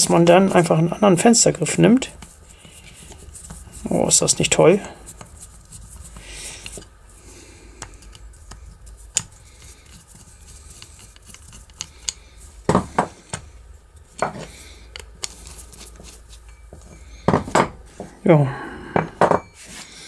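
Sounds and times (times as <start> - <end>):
small metal clicks and scrapes: 7.9 - 12.3.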